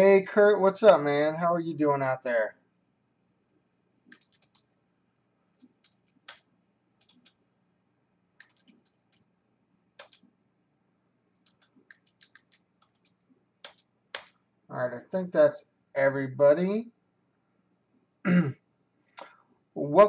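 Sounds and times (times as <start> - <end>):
keyboard typing: 4.1 - 4.8, 5.6 - 7.4, 8.4 - 9.3, 10.0 - 10.3, 11.4 - 14.4.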